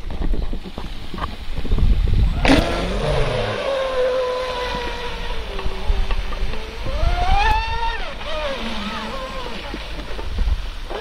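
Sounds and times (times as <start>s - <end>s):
electric boat motor whine: 2.4s - 11.0s.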